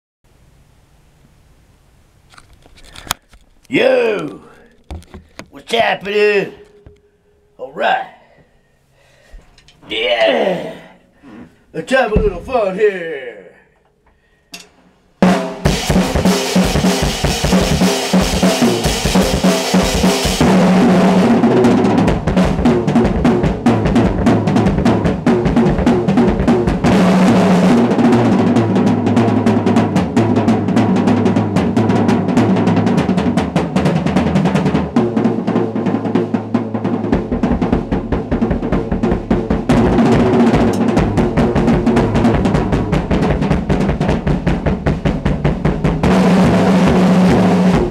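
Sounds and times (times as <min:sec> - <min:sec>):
drum kit solo: 0:11.8 - 0:13.3, 0:15.2 - 0:47.9.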